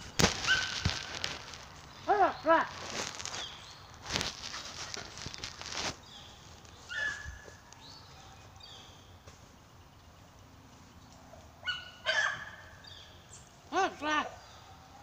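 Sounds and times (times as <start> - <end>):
brush rustling: 0.0 - 11.3
dog yelping: 6.9 - 7.3, 11.6 - 12.6.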